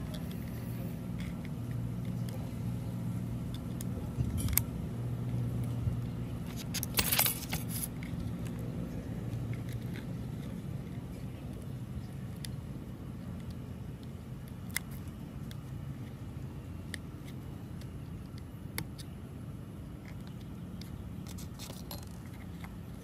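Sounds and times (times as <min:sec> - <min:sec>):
steady low hum: 0:00.0 - 0:23.0
screwdriver metal clicks and scrapes: 0:06.4 - 0:08.6, 0:20.0 - 0:23.0
small parts rattling: 0:06.4 - 0:08.6, 0:20.0 - 0:23.0.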